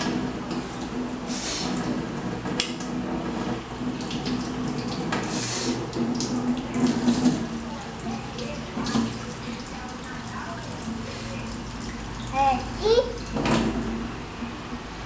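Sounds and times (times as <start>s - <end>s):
tap running into sink: 1.7s - 10.7s, 13.2s - 14.1s.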